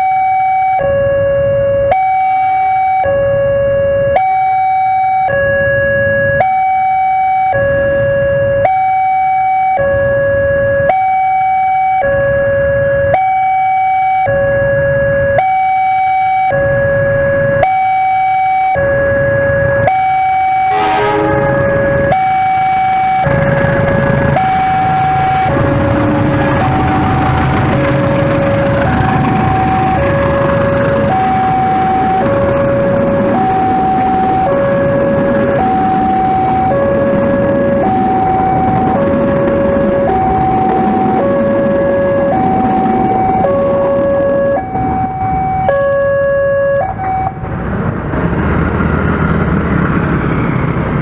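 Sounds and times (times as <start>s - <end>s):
level crossing two-tone alarm: 0.0s - 25.7s, 28.0s - 47.4s
train coaches running on rails: 20.7s - 33.4s.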